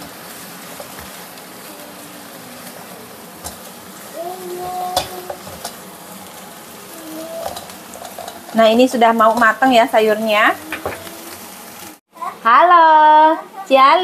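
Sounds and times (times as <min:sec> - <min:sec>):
greens sizzling in oil: 0:00.0 - 0:14.0
spatula scraping and tossing: 0:02.6 - 0:12.0
spatula tapping pan: 0:04.6 - 0:05.8.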